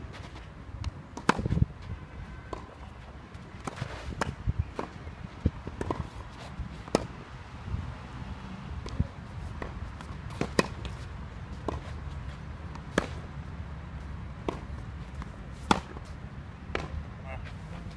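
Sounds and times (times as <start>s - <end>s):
racket hitting ball: 1.1s - 1.6s, 5.6s - 6.2s, 6.8s - 7.2s, 8.8s - 11.0s, 12.7s - 13.3s, 14.4s - 17.0s.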